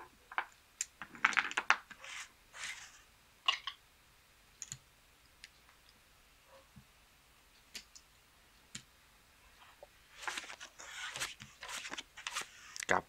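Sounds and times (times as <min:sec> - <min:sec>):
cards swept off felt table: 0:10.2 - 0:12.8.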